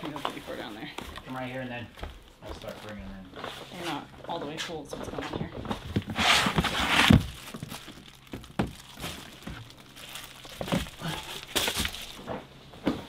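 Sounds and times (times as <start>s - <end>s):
plastic crinkling and rustling: 0.0s - 12.5s
plastic totes knocking: 4.3s - 9.7s, 10.6s - 13.0s.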